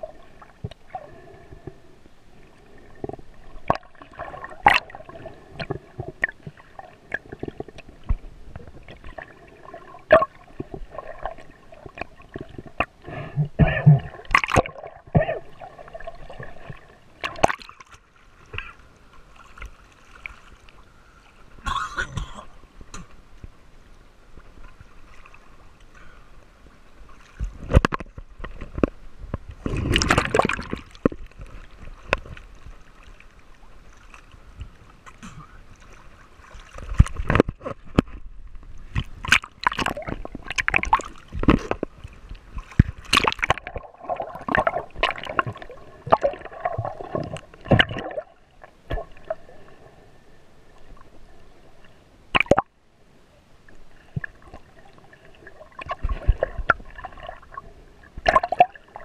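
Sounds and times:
water sloshing and gurgling: 0.0s - 59.0s
water splashing: 2.7s - 13.0s, 13.6s - 20.8s, 29.6s - 49.8s, 52.3s - 52.7s, 54.0s - 59.0s.

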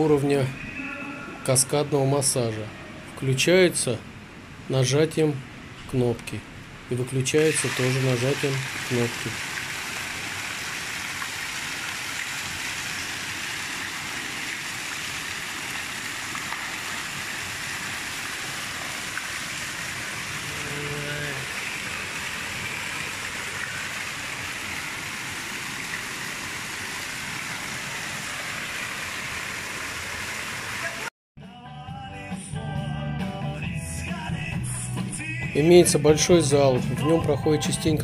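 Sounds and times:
water jet splashing into pool: 7.4s - 31.1s.

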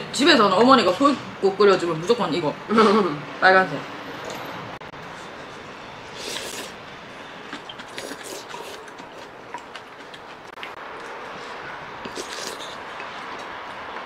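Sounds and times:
slurp from a spoon: 6.2s - 6.8s, 7.6s - 9.1s, 11.4s - 13.2s
soft chewing: 7.5s - 14.0s.

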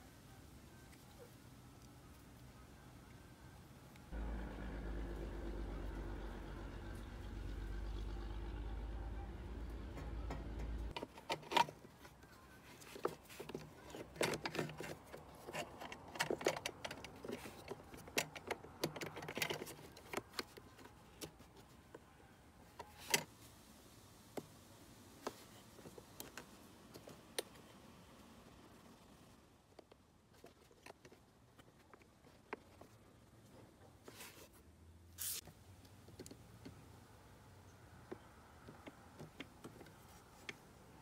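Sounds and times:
fuel pump parts clicking and rattling: 9.8s - 12.2s, 12.8s - 21.7s.

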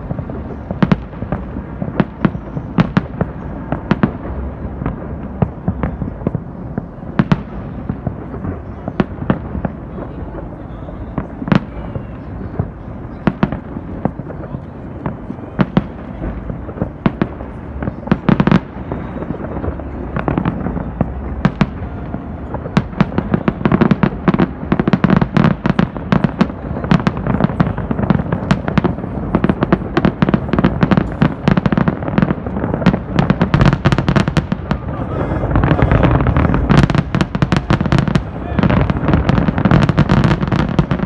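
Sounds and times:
fireworks bangs and crackles: 0.0s - 41.0s
low rumble: 34.5s - 39.6s.

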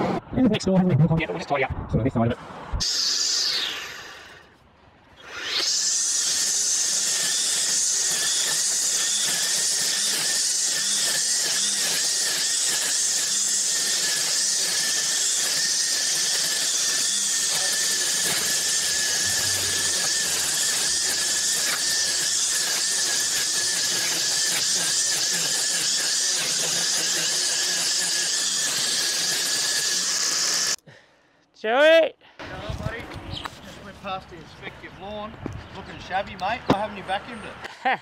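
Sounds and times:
string trimmer cutting grass: 5.2s - 30.8s.

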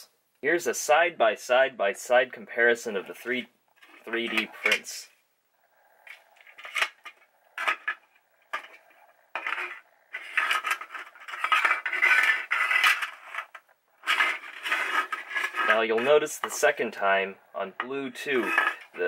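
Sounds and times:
plastic scraping across a desk: 6.0s - 16.6s.

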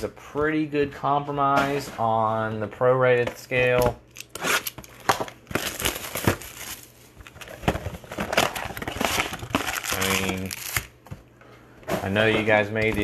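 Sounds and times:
foil wrappers crinkling: 4.2s - 10.9s.

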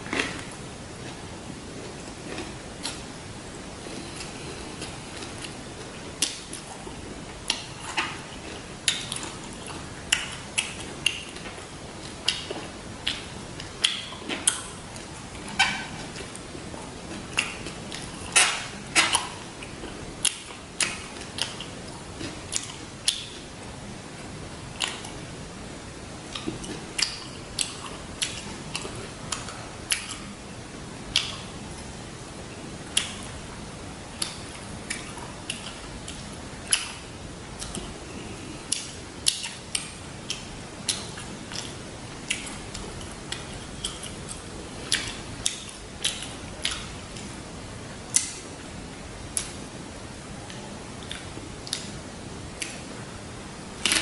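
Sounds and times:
wet chewing clicks and smacks: 6.2s - 16.5s, 17.1s - 23.4s, 24.8s - 25.2s, 26.3s - 30.3s, 31.1s - 31.9s, 32.8s - 33.4s, 34.2s - 37.0s, 37.6s - 37.9s, 38.7s - 47.4s, 49.3s - 49.6s, 50.4s - 52.0s.

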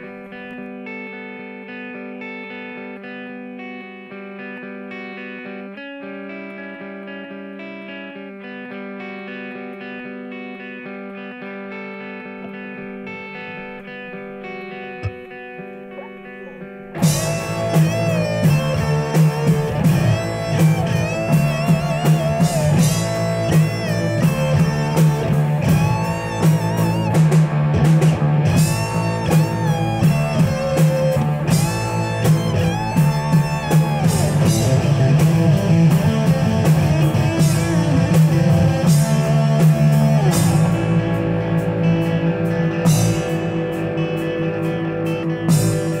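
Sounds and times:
electric guitar melody: 0.0s - 46.0s
rock band playing: 0.0s - 46.0s
drums: 12.4s - 46.0s.

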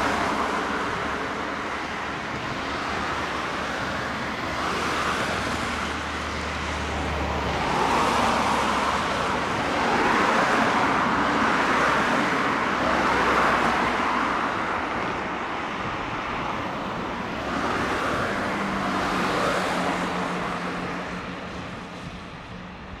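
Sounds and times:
cars passing on a bridge: 0.0s - 23.0s.

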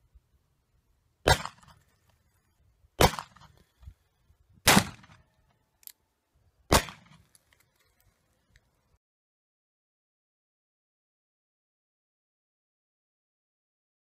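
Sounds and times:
revolver shots with echo: 1.3s - 1.7s, 4.7s - 5.2s.

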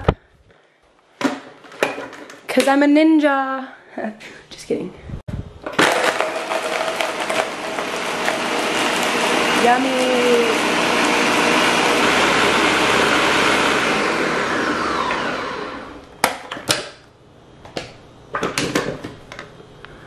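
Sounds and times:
blender motor running: 5.7s - 16.0s.

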